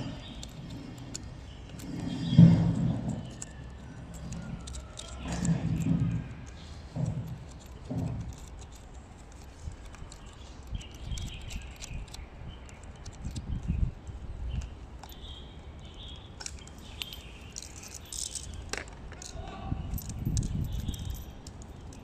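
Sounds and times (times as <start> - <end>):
test leads and clamps rattling: 0.0 - 22.0.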